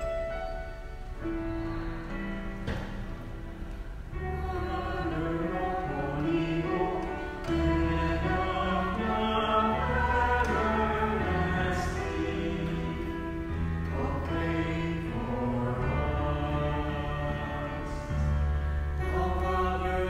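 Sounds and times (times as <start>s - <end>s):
choir singing a hymn: 4.0s - 20.0s.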